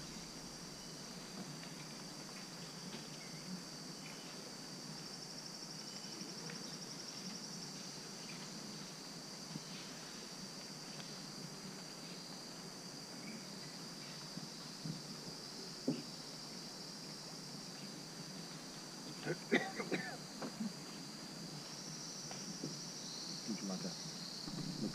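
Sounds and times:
high-pitched insect drone: 0:12.0 - 0:24.9.

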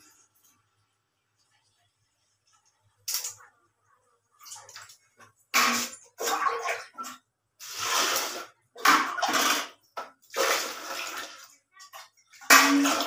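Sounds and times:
water pouring and splashing into bucket: 0:04.4 - 0:13.0.

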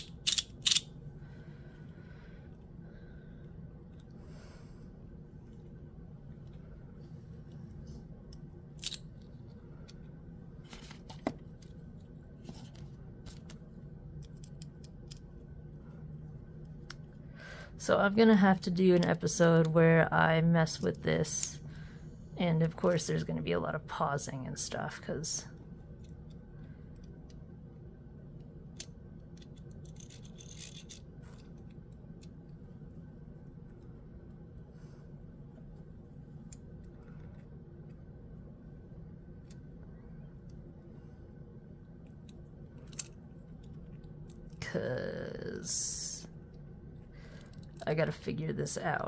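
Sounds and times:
magnetic coin clicks and scrapes: 0:00.0 - 0:00.9
low steady hum: 0:00.0 - 0:49.0
magnetic toy clicking and scraping: 0:28.8 - 0:32.5.

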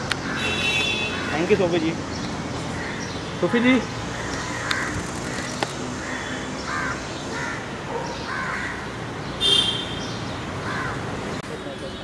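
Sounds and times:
bird calling: 0:04.1 - 0:11.0
sharp clicks: 0:04.6 - 0:05.8.

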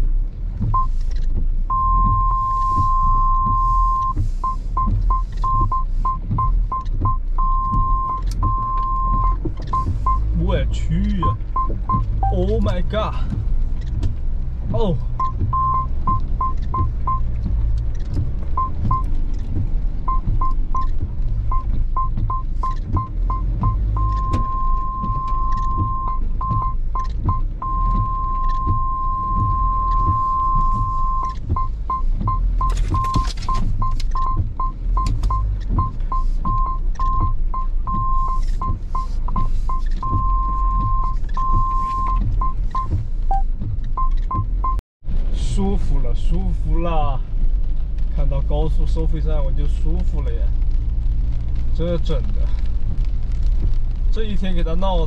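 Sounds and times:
engine rumbling in low gear: 0:00.0 - 0:55.0
parking sensor beeping: 0:00.7 - 0:01.0, 0:01.7 - 0:13.0, 0:15.2 - 0:17.3, 0:18.6 - 0:19.1, 0:20.0 - 0:44.8.

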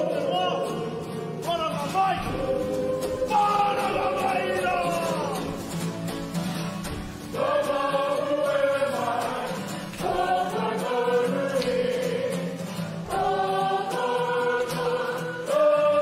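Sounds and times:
group singing in unison: 0:00.0 - 0:01.4, 0:02.2 - 0:05.8, 0:06.8 - 0:16.0.

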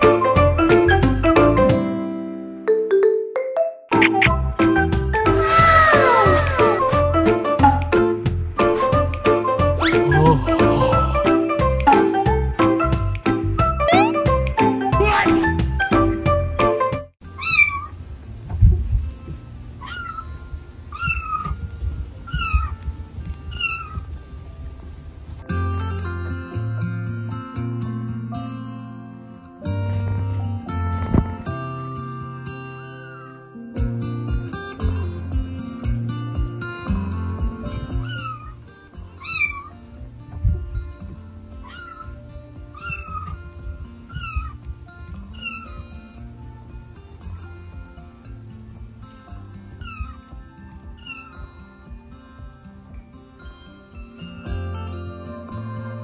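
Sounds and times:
kitten meowing: 0:05.3 - 0:07.0, 0:13.9 - 0:14.2, 0:17.4 - 0:17.9, 0:19.8 - 0:20.2, 0:20.9 - 0:21.6, 0:22.3 - 0:22.7, 0:23.5 - 0:24.0, 0:38.0 - 0:38.5, 0:39.2 - 0:39.7, 0:41.6 - 0:42.1, 0:42.8 - 0:43.4, 0:44.1 - 0:44.6, 0:45.3 - 0:45.7, 0:49.8 - 0:50.2, 0:51.0 - 0:51.3.

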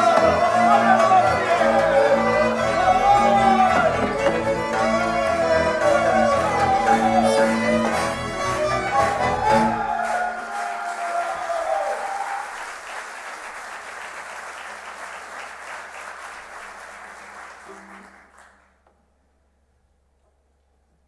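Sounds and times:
folk dance music: 0:00.0 - 0:12.5
audience applauding: 0:00.0 - 0:18.8.

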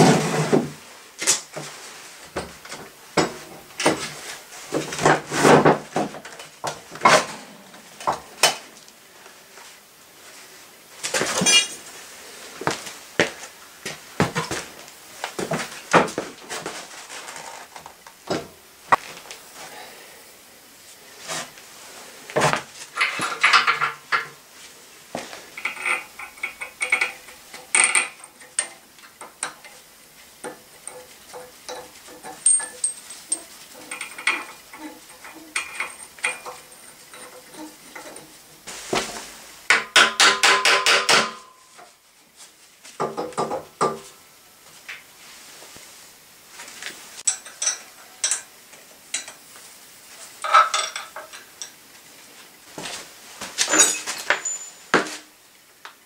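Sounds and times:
metal parts clinking and knocking: 0:11.4 - 0:11.8, 0:23.0 - 0:24.3, 0:25.6 - 0:29.6, 0:30.5 - 0:38.3, 0:47.2 - 0:48.5, 0:50.4 - 0:51.7, 0:53.6 - 0:54.9.

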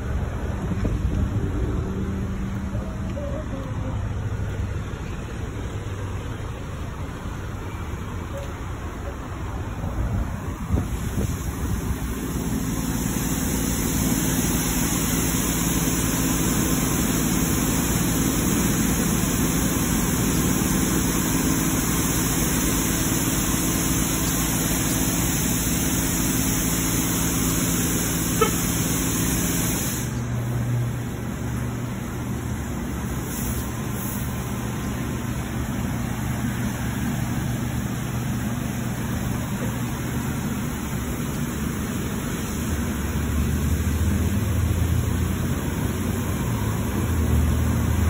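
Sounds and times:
pump motors humming: 0:00.0 - 0:48.0
water spray hiss: 0:10.8 - 0:30.3, 0:33.1 - 0:34.6.

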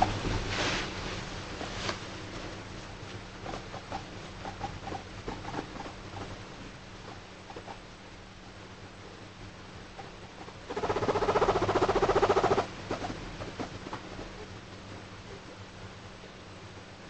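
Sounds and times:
fabric bed rustling: 0:00.0 - 0:02.8
guinea pig chattering: 0:03.5 - 0:06.3, 0:10.0 - 0:13.1.

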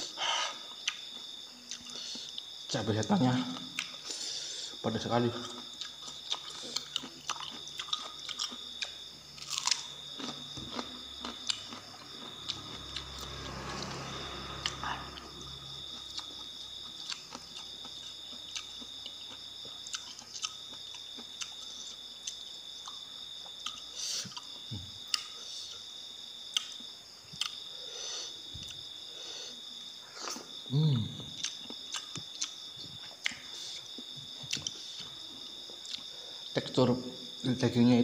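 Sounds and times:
insect chirring: 0:00.0 - 0:38.0
man chewing and lip smacking: 0:00.6 - 0:02.5, 0:03.5 - 0:04.2, 0:05.4 - 0:12.8, 0:16.0 - 0:25.5, 0:26.5 - 0:27.7, 0:28.6 - 0:28.9, 0:31.2 - 0:36.1
man humming: 0:30.7 - 0:31.2.

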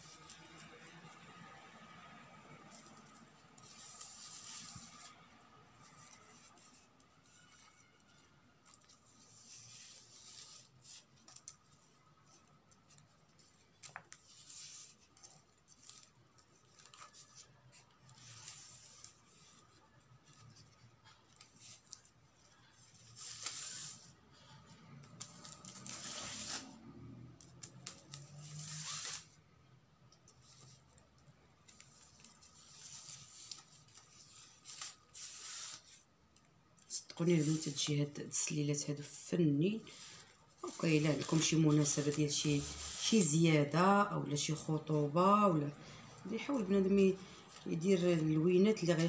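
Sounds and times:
ribbon rustling and swishing: 0:02.5 - 0:29.5, 0:30.1 - 0:49.0
wicker basket handling noise: 0:30.1 - 0:43.4.

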